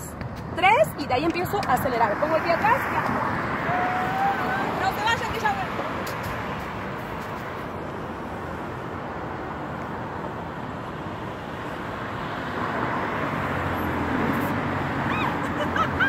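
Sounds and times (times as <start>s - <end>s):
vehicle engine: 1.6s - 16.0s
passing cars hissing: 2.6s - 5.1s, 5.8s - 16.0s.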